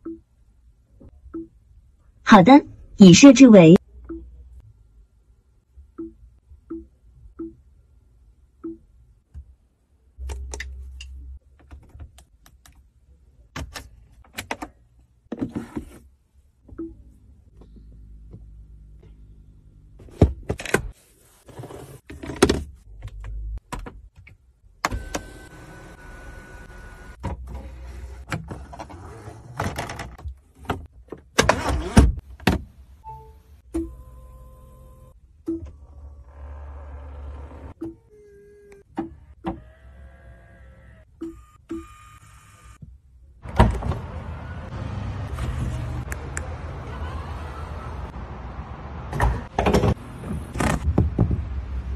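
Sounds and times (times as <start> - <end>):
clicks and thunks of controls: 10.2 - 12.9, 13.5 - 15.9, 16.6 - 19.2, 22.0 - 25.3, 29.6 - 34.1, 35.4 - 39.7, 49.1 - 51.5.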